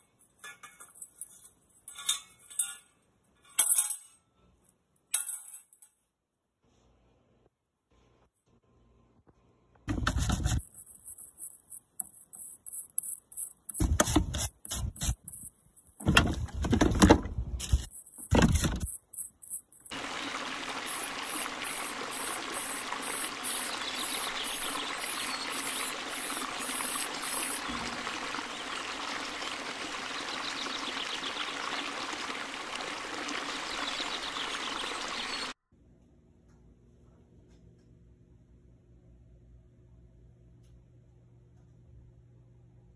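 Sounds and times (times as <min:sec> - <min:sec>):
brush scrubbing in soapy water: 0:09.9 - 0:15.5
hand scraping bicycle frame: 0:09.9 - 0:19.9.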